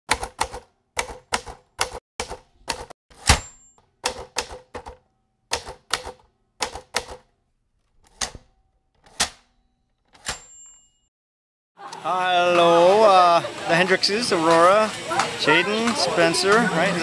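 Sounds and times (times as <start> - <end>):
typewriter keys striking: 0.1 - 3.4
typewriter bell ring: 9.6 - 11.1.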